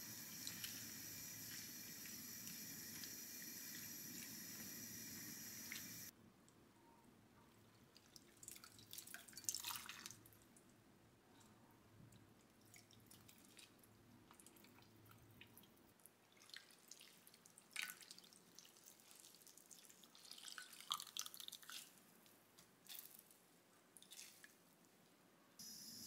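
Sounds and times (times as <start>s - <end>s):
water dripping and splashing: 0.0s - 6.1s, 8.0s - 10.2s, 16.3s - 22.0s.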